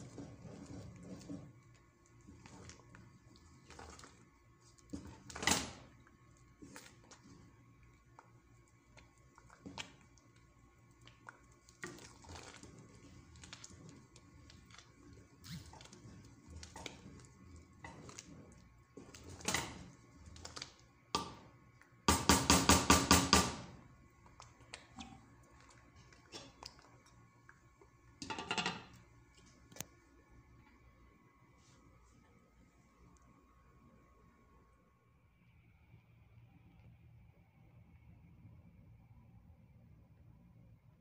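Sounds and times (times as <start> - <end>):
wooden spoon scraping rice in pot: 0.0 - 20.8.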